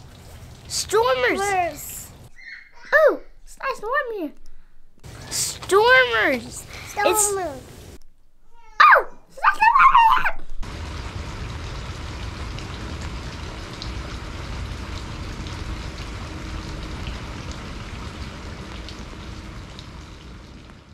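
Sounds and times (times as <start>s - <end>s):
rain on puddle and ground: 0.0s - 2.3s, 5.0s - 8.1s, 10.2s - 20.9s.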